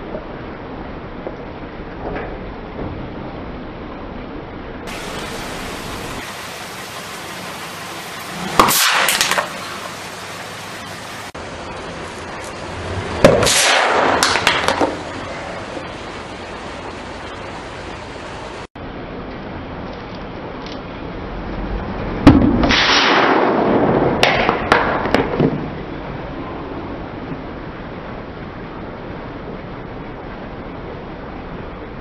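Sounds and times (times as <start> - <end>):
aerosol spraying: 4.9 - 11.4
aerosol can bursting with pop: 8.4 - 9.9, 13.3 - 15.0.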